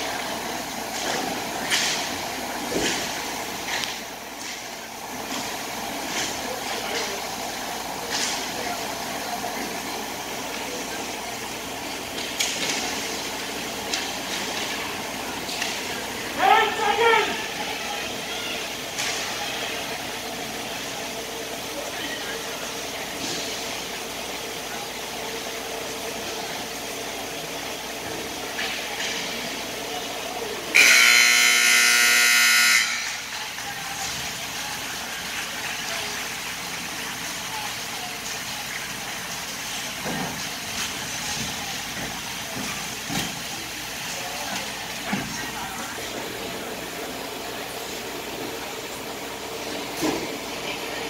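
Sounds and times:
scoreboard horn: 30.7s - 33.2s.

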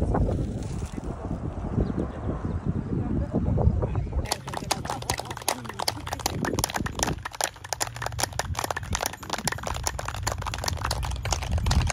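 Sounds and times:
group of people clapping: 4.2s - 11.9s.

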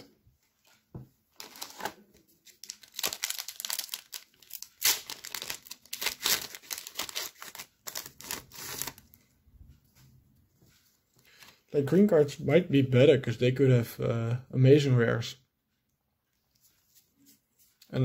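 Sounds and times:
wrapper tearing and crinkling: 1.4s - 9.0s.

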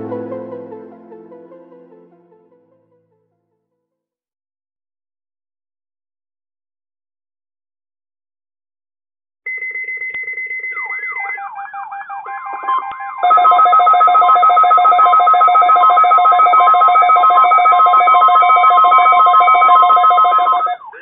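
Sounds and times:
weather radio alert alarms: 10.9s - 21.0s.

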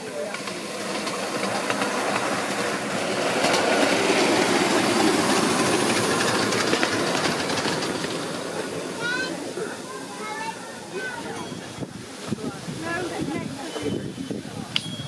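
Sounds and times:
wheels clicking over rails: 0.0s - 9.5s
miniature steam locomotive running: 0.0s - 15.0s.

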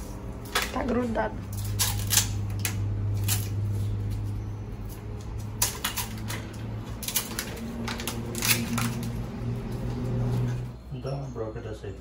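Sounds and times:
curtain rods clacking: 5.0s - 9.4s.

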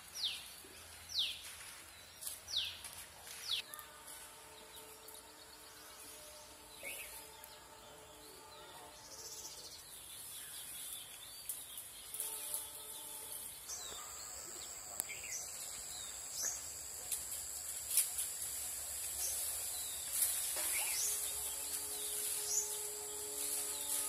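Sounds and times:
steady high-pitched hiss: 0.0s - 24.0s
bird chirps: 4.6s - 17.2s, 17.9s - 24.0s.

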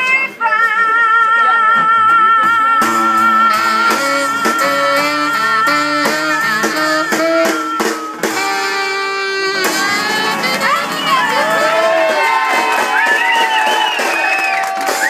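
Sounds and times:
drums: 0.0s - 15.0s
acoustic guitar: 1.8s - 15.0s
woman singing high note: 3.0s - 12.2s.

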